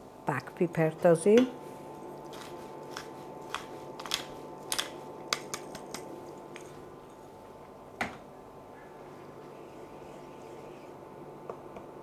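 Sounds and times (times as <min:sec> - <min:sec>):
pepper grinder clicking: 0:02.4 - 0:06.0.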